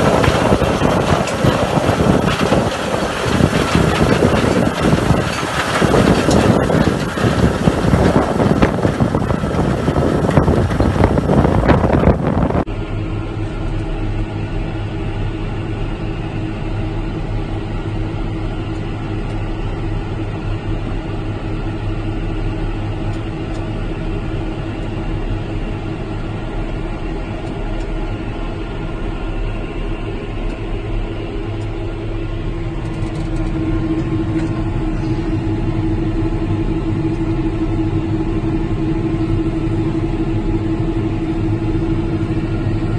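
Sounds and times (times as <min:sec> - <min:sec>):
wind buffeting: 0:00.0 - 0:12.7
tractor engine running: 0:00.0 - 0:42.9.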